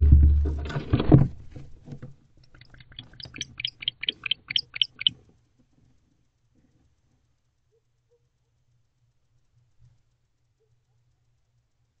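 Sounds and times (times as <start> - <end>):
owl high clicks: 2.4 - 5.2.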